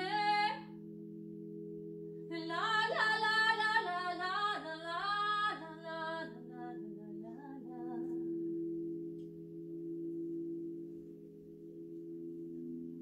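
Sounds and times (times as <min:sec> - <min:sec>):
woman singing wordless melody: 0:00.0 - 0:00.8, 0:02.3 - 0:08.6
crystal singing bowls ringing: 0:00.0 - 0:13.0.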